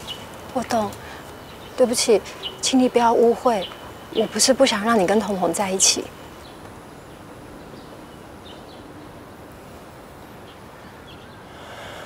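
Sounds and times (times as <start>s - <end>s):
steady low hiss: 0.0s - 12.0s.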